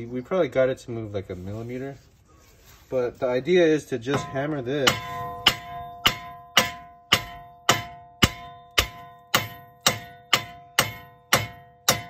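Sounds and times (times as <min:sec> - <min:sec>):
sledgehammer striking metal: 0:04.1 - 0:12.0
steel ringing: 0:04.1 - 0:12.0.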